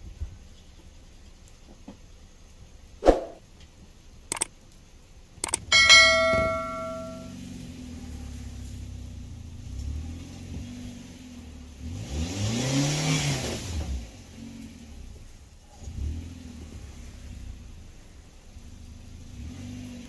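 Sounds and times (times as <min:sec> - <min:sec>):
quick swish: 0:03.0 - 0:03.4
bell chime: 0:05.4 - 0:07.3
low steady hum: 0:05.4 - 0:07.3.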